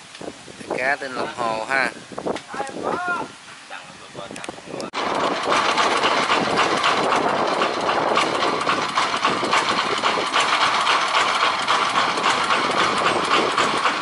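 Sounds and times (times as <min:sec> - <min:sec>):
motor rattling: 0:05.0 - 0:14.0.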